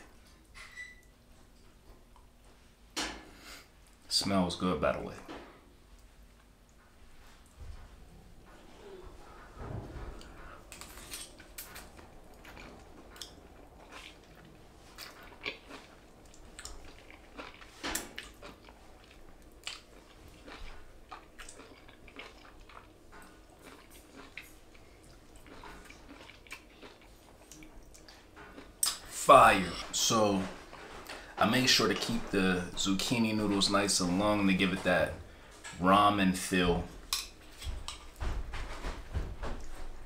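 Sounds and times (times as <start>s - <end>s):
person slurping and chewing: 10.7s - 29.7s.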